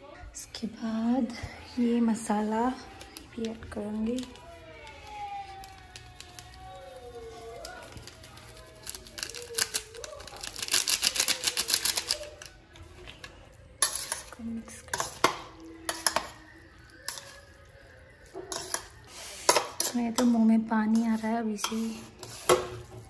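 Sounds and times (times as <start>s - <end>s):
sachet rustling: 2.6s - 20.2s
metal utensil clinking in metal bowl: 7.6s - 17.6s, 18.3s - 23.0s.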